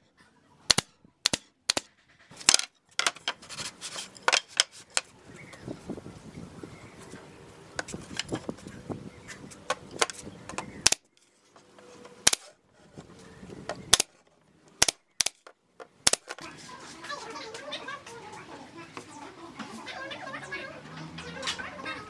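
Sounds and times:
nail gun firing: 0.7 - 2.6, 10.8 - 11.1, 12.2 - 12.5, 13.8 - 14.2, 14.8 - 16.4
wood knocking and rubbing: 2.3 - 5.7, 7.8 - 8.7, 9.3 - 10.8.

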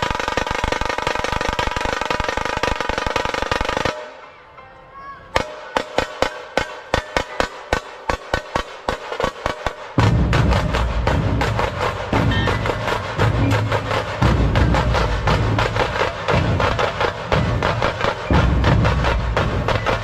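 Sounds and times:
loud dense drumming: 5.4 - 20.0.

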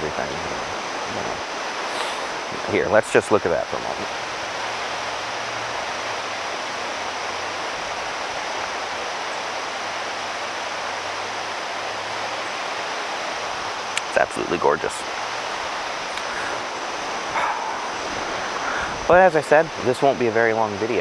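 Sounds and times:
river rushing over stones: 0.0 - 21.0.

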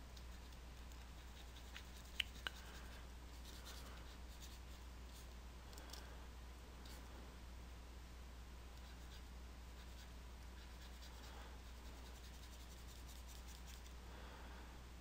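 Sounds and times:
steady low hum: 0.0 - 15.0
stylus scratching on a tablet: 0.2 - 5.3, 8.8 - 14.0.

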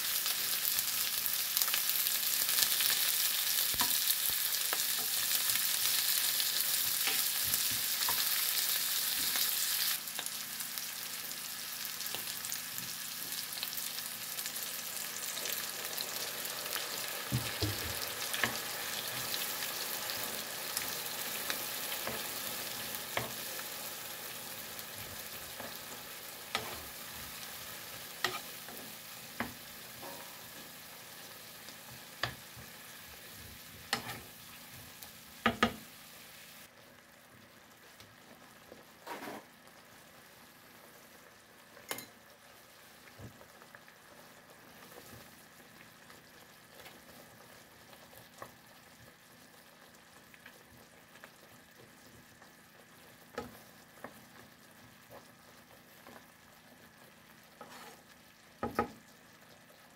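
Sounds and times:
sauce bubbling and sizzling in a pan: 0.0 - 59.9
wooden spatula knocking on a pan: 35.4 - 35.8.

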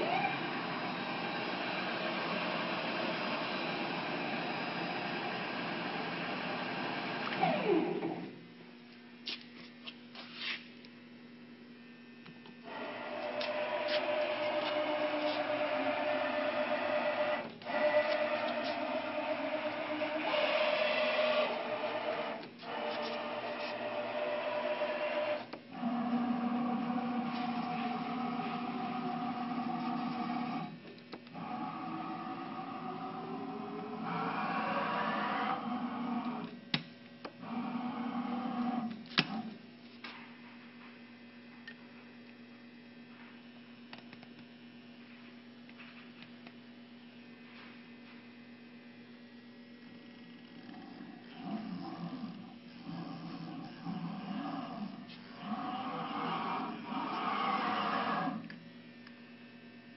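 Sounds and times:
lathe spindle running: 0.0 - 8.4, 12.6 - 36.6, 49.8 - 58.6
steady low hum: 0.0 - 59.9.

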